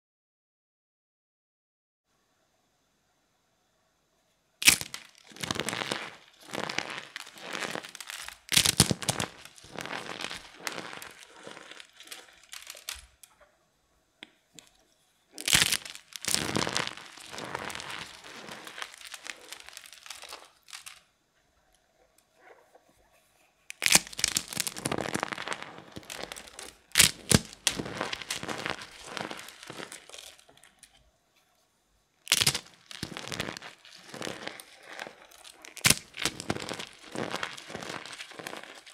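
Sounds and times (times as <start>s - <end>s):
crunching of shell fragments: 4.6s - 13.3s, 15.4s - 21.1s, 23.7s - 31.0s, 32.3s - 38.9s
eggshells cracking: 4.6s - 13.3s, 15.3s - 21.1s, 23.7s - 31.0s, 32.2s - 38.9s.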